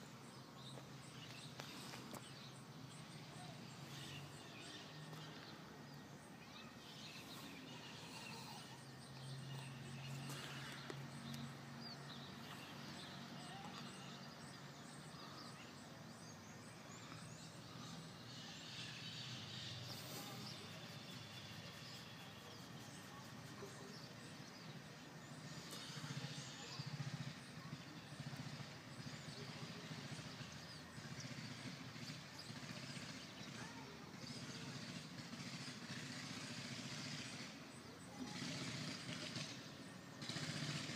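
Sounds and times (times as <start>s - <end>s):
faint bird chirps: 0.0s - 31.5s
faint low engine hum: 0.0s - 40.9s.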